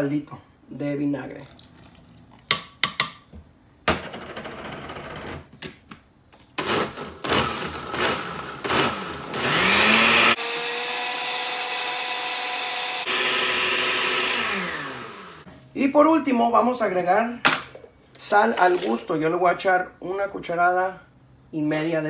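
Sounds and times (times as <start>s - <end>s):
blender motor whining: 6.6s - 15.5s.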